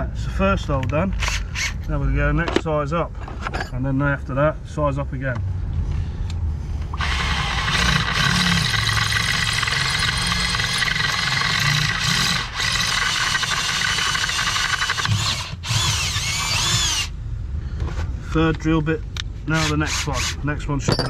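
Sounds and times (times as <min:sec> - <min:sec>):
cordless drill boring through steel: 0:07.0 - 0:17.1, 0:19.6 - 0:20.4.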